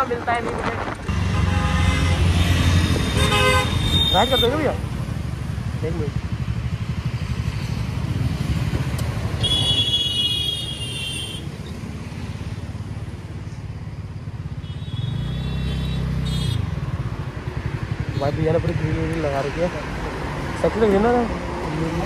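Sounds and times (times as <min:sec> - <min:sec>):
scooter engine and road noise: 0:00.0 - 0:22.0.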